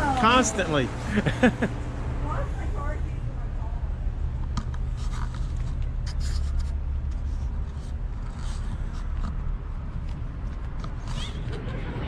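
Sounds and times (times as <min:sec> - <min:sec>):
steady low rumble: 0:00.0 - 0:12.0
handheld camera rubbing and scraping: 0:04.6 - 0:11.6.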